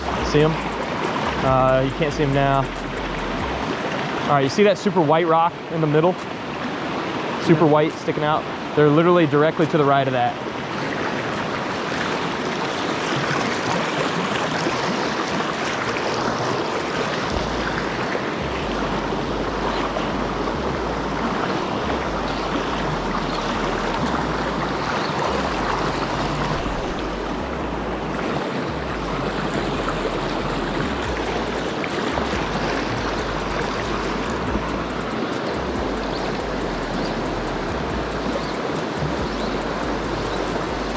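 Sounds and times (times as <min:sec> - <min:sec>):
river water rushing over rocks: 0:00.0 - 0:40.9
low rumble: 0:17.3 - 0:38.4.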